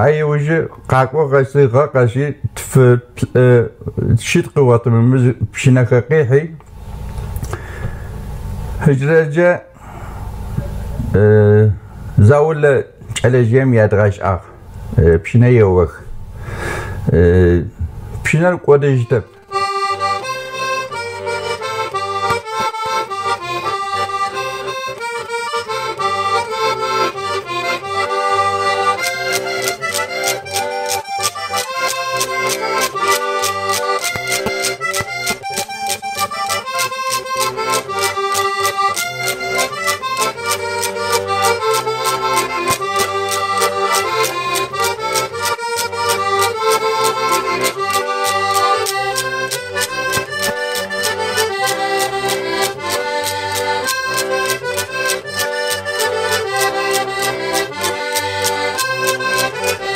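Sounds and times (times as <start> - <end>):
accordions playing folk tune: 0.0 - 1.9, 6.6 - 9.0, 18.2 - 59.9
wooden clappers clacking: 28.6 - 59.9.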